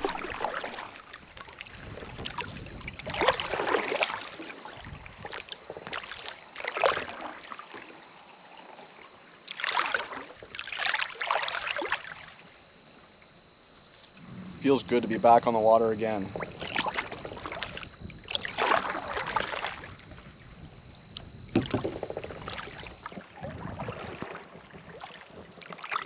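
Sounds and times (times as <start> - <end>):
kayak paddle splashing in water: 0.0 - 8.0, 9.4 - 12.6, 16.1 - 26.0.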